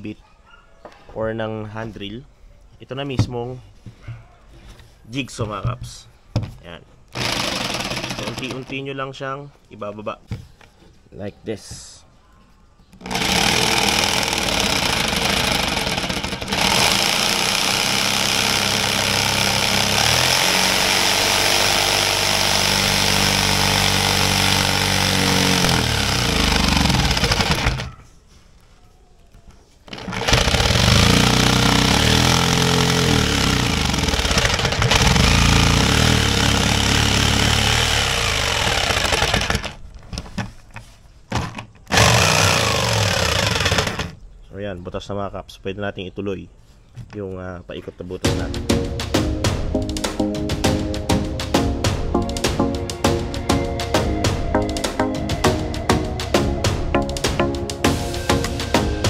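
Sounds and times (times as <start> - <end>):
jigsaw cutting plywood: 7.1 - 8.8, 13.0 - 28.0, 29.9 - 39.8, 41.9 - 44.2.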